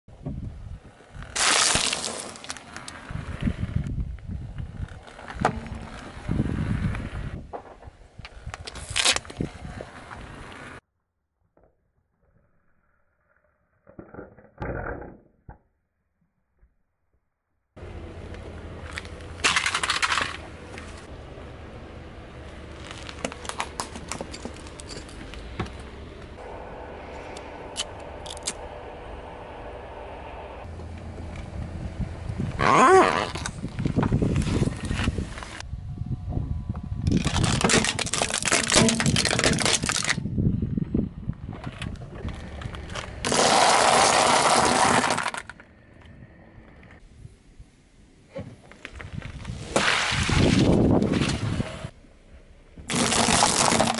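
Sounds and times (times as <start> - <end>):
low steady rumble: 0.1 - 10.8, 17.8 - 53.9
plastic toy crushed by tyre: 1.3 - 3.0, 18.9 - 20.4, 37.0 - 40.3, 43.0 - 45.6, 52.9 - 53.9
sharp plastic cracks: 37.1 - 40.2, 52.9 - 53.9.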